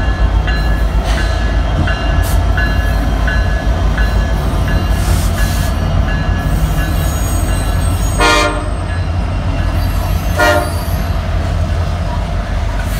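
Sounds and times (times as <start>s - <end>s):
diesel locomotive engine rumble: 0.0s - 12.9s
locomotive horn blasts: 8.1s - 8.9s, 10.4s - 11.0s.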